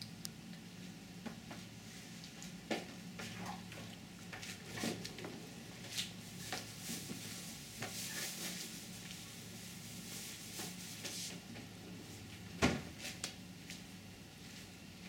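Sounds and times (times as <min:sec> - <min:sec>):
steady low hum: 0:00.0 - 0:08.0.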